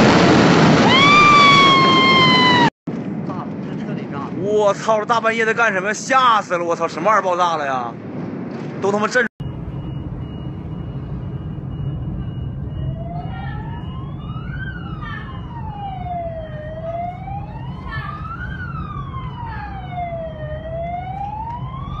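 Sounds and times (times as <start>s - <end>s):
siren wailing: 0.1s - 2.7s, 9.4s - 22.0s
steady low rumble: 7.8s - 22.0s.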